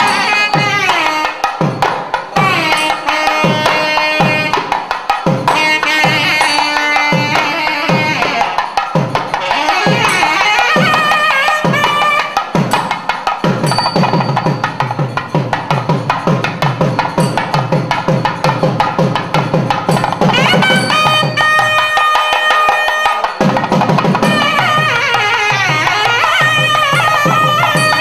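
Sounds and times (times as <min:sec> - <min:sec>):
reed pipe melody: 0:00.0 - 0:01.6, 0:02.3 - 0:12.9, 0:20.2 - 0:28.0
drum strokes: 0:00.0 - 0:28.0.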